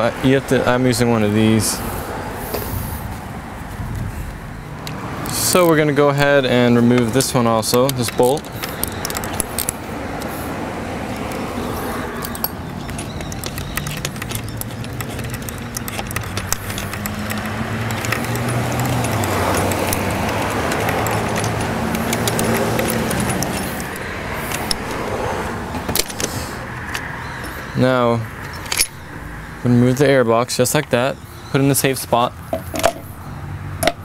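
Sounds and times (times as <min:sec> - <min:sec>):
vehicle engine running: 0:06.2 - 0:29.6
socket wrench clicking on bolt: 0:06.9 - 0:10.3, 0:11.1 - 0:25.1, 0:25.8 - 0:27.6, 0:28.4 - 0:29.1.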